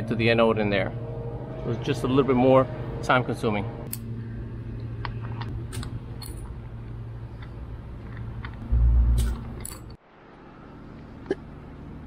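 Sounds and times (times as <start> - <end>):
steady low hum: 0.0 - 12.0
loud low rumble: 8.6 - 9.9.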